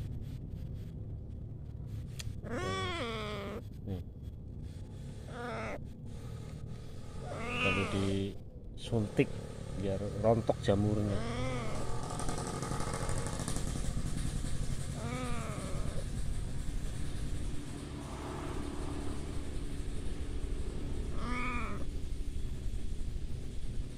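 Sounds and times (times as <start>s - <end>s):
kitten meowing: 2.4s - 3.6s, 5.3s - 5.8s, 7.2s - 8.2s, 11.0s - 12.0s, 14.9s - 16.0s, 21.1s - 21.9s.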